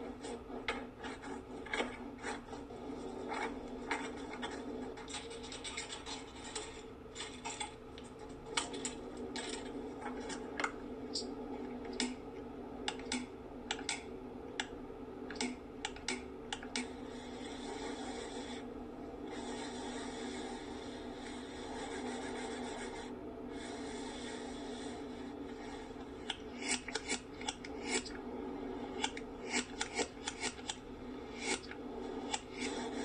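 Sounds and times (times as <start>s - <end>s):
scratchy rubbing: 0.0s - 7.7s, 19.3s - 33.0s
steady low hum: 0.0s - 33.0s.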